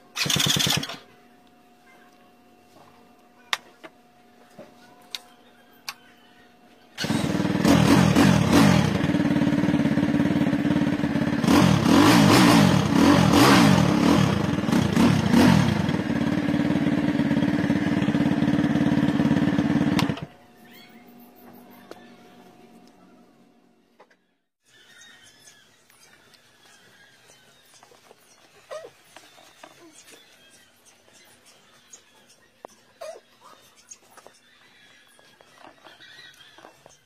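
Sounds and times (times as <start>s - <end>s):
motorcycle engine revving: 0.1s - 1.0s, 7.0s - 20.3s.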